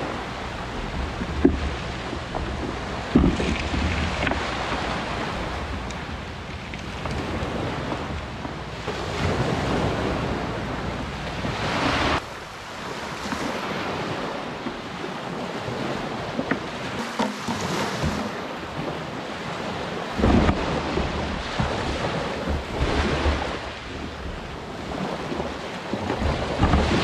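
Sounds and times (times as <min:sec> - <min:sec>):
waves breaking on pebble beach: 0:00.0 - 0:27.0
wind buffeting microphone: 0:00.0 - 0:27.0.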